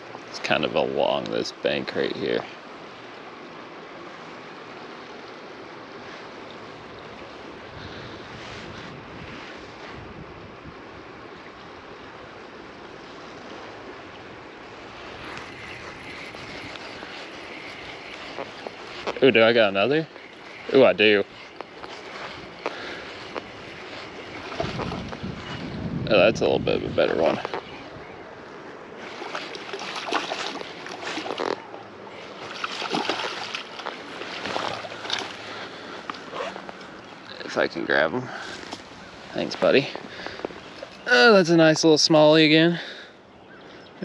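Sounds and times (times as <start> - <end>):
wind noise on microphone: 7.5 - 11.2, 15.0 - 19.3, 20.9 - 28.2
water splashing: 13.2 - 25.8, 28.8 - 37.3.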